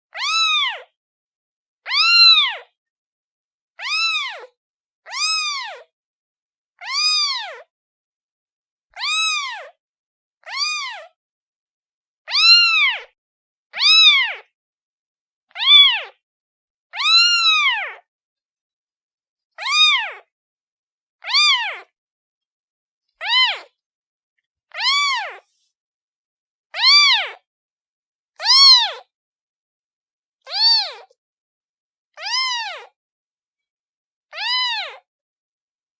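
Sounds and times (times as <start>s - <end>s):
kitten meowing: 0.1s - 0.9s, 1.9s - 2.7s, 3.8s - 4.5s, 5.1s - 5.9s, 6.8s - 7.7s, 9.0s - 9.8s, 10.4s - 11.1s, 12.3s - 13.2s, 13.8s - 14.5s, 15.5s - 16.2s, 17.0s - 18.0s, 19.6s - 20.3s, 21.2s - 21.9s, 23.2s - 23.7s, 24.7s - 25.5s, 26.7s - 27.4s, 28.4s - 29.1s, 30.5s - 31.2s, 32.2s - 32.9s, 34.3s - 35.0s.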